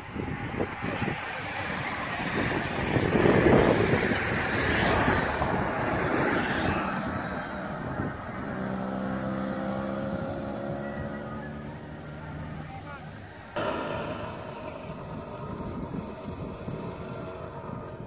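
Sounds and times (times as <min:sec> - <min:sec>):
vehicles passing on road: 0:00.0 - 0:18.0
steady humming tone: 0:13.6 - 0:18.0.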